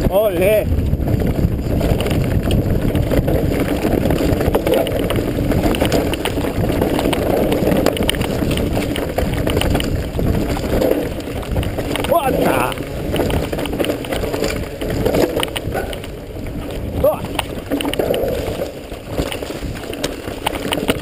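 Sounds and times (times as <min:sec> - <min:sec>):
tyres on dirt: 0:00.0 - 0:21.0
wind on microphone: 0:00.0 - 0:21.0
bike rattling clicks: 0:00.1 - 0:21.0.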